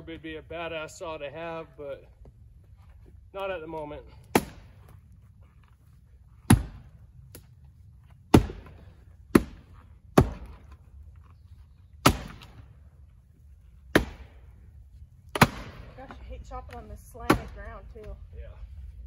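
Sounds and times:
axe strikes splitting wood: 0:04.2 - 0:04.8, 0:06.4 - 0:07.5, 0:08.3 - 0:10.8, 0:12.0 - 0:12.6, 0:13.9 - 0:14.4, 0:15.3 - 0:16.0, 0:17.3 - 0:17.6.

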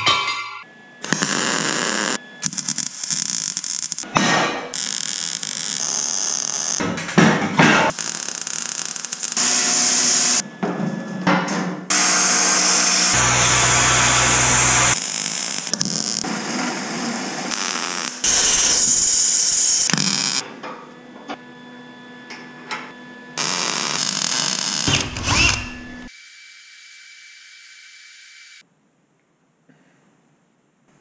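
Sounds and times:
power tools running loudly: 0:09.2 - 0:10.4, 0:11.9 - 0:20.4, 0:23.1 - 0:26.2.

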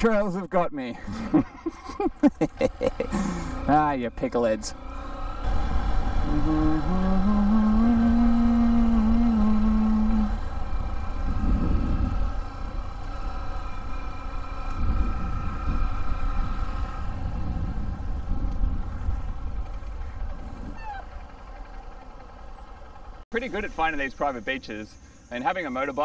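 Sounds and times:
small motorcycle engine running: 0:01.1 - 0:23.2
wind rumbling on microphone: 0:05.4 - 0:23.2.

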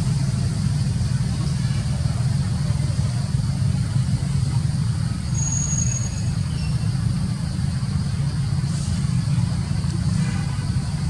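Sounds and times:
thin high whistle: 0:05.3 - 0:06.8.

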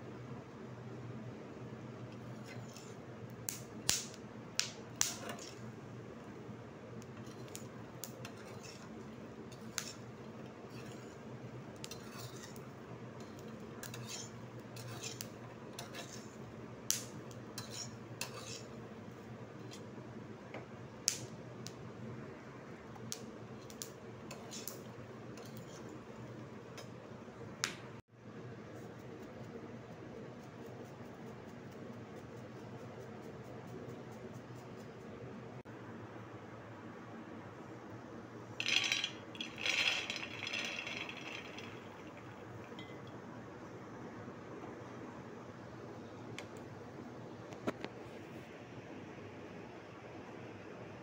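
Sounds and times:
steady low hum: 0:00.0 - 0:50.8
peanuts crackling while roasting: 0:38.6 - 0:42.7.

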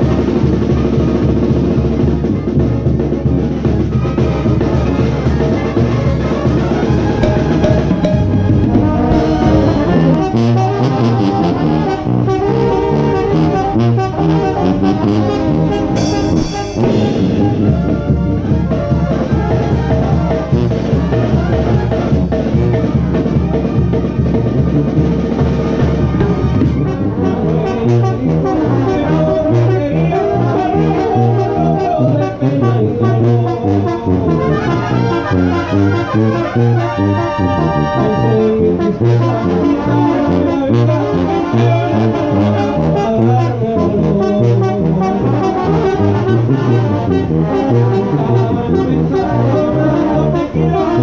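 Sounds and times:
trumpets and trombones: 0:00.0 - 0:51.0
tuba bass line: 0:00.0 - 0:51.0
timbales and cymbal beat: 0:07.2 - 0:11.3, 0:15.4 - 0:18.7.

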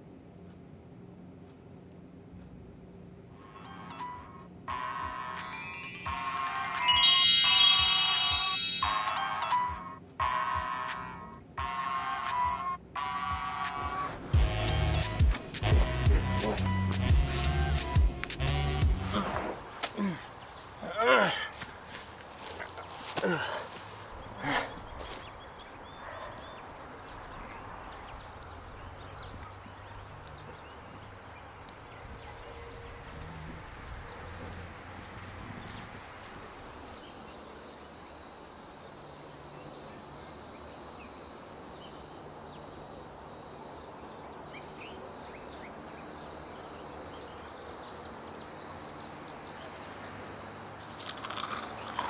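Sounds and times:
insects chirping: 0:04.7 - 0:09.6, 0:19.1 - 0:52.0.

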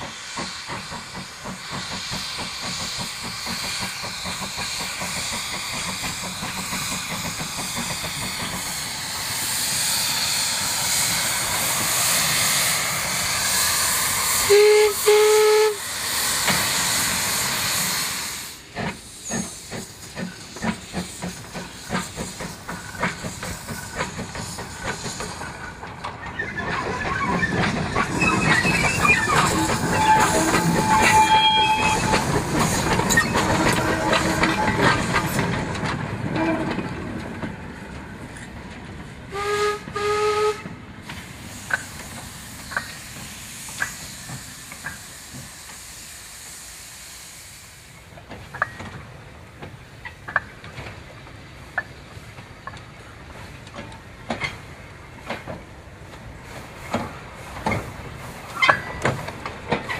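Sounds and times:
steam locomotive exhaust: 0:00.0 - 0:36.9, 0:39.2 - 0:50.7
train whistle toots: 0:14.4 - 0:15.9, 0:28.4 - 0:32.4, 0:33.1 - 0:35.0, 0:39.3 - 0:40.7
wheels clanking over rail joints: 0:18.7 - 0:39.2, 0:48.2 - 0:59.9.

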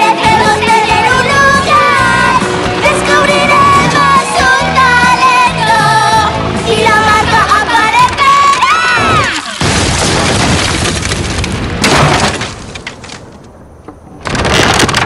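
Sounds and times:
cartoon wooden crash clattering: 0:07.9 - 0:13.5, 0:14.1 - 0:15.0.

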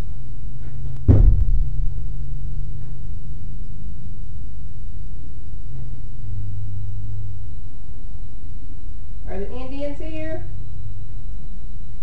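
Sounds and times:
faint low hum: 0:00.0 - 0:12.0
sharp thump: 0:01.0 - 0:02.9
low rumble: 0:01.0 - 0:03.8.

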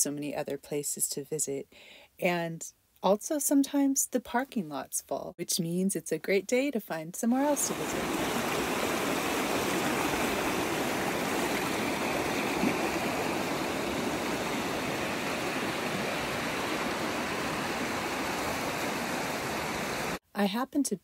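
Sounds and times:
creek rushing through rapids: 0:07.5 - 0:20.2.

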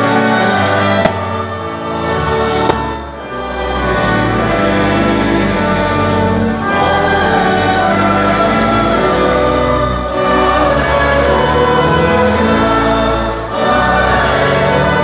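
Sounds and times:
choir and congregation singing a hymn: 0:00.0 - 0:15.0
instrumental accompaniment: 0:00.4 - 0:03.9.

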